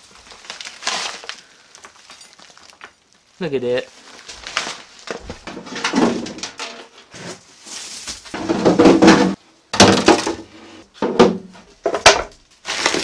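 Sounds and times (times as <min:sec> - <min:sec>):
sticks and leaves rustling: 0:00.0 - 0:08.9, 0:11.8 - 0:13.0.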